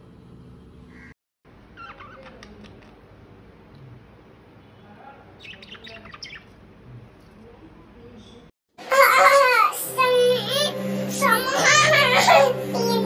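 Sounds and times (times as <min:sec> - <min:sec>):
budgerigars chirping: 0:05.4 - 0:06.6.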